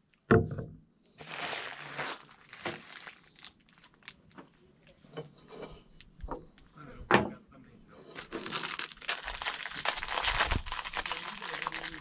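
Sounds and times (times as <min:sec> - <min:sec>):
nylon sack rustling: 0:01.2 - 0:03.9, 0:08.2 - 0:12.0.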